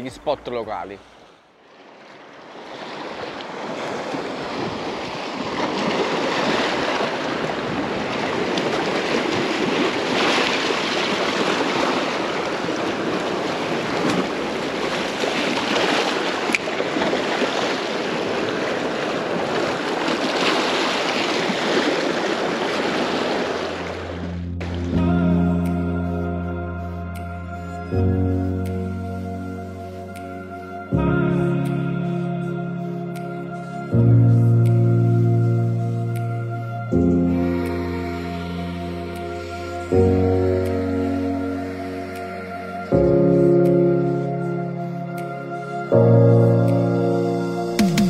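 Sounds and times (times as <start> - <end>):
waves breaking over rocks: 0.5 - 25.0.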